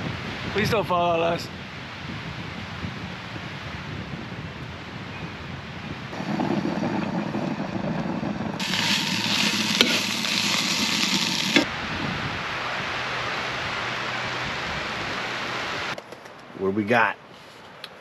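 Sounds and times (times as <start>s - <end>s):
food sizzling in a pan: 8.6s - 11.7s.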